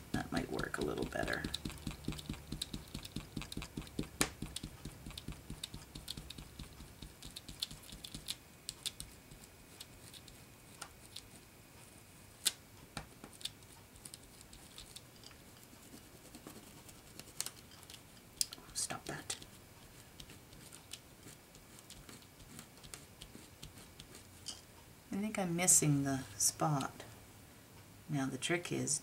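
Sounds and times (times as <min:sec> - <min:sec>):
cloth tapping on stencil: 0:01.3 - 0:08.3.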